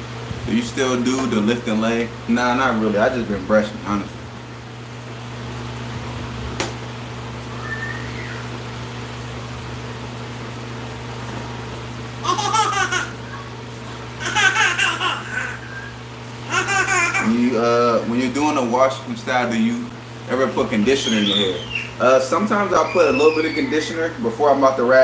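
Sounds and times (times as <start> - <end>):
fan humming: 0.0 - 25.0
child laughing or squealing: 12.2 - 13.6, 14.2 - 17.3, 22.8 - 23.9.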